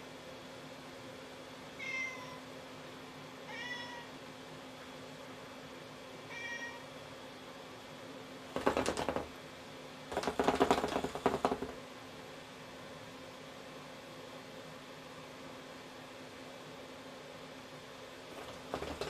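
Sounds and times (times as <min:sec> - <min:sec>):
cat meowing: 0:01.8 - 0:02.4, 0:03.5 - 0:04.1, 0:06.3 - 0:06.9.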